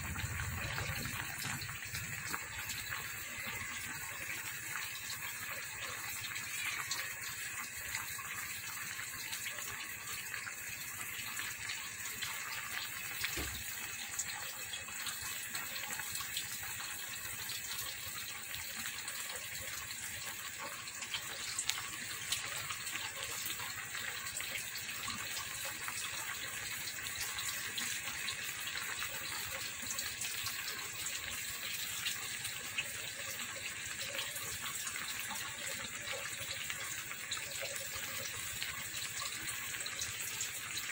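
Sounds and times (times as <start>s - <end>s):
broth bubbling in a pot: 0.0s - 40.9s.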